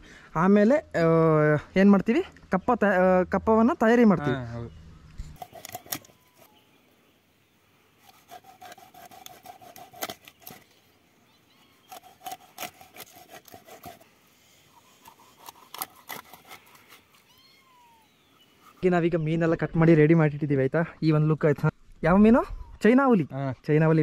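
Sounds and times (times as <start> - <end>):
knife sawing through fish: 5.4 - 6.5, 8.0 - 10.6, 11.8 - 17.3.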